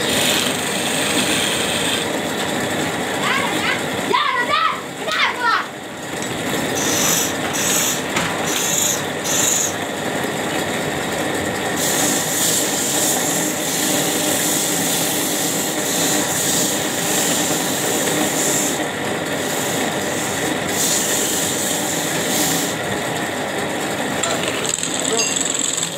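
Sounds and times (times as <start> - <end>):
chisel scraping wood: 0.0 - 2.1
wood lathe spinning: 0.0 - 25.9.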